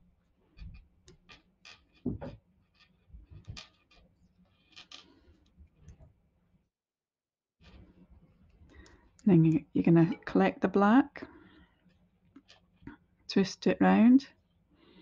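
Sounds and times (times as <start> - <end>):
knock: 2.0 - 2.4.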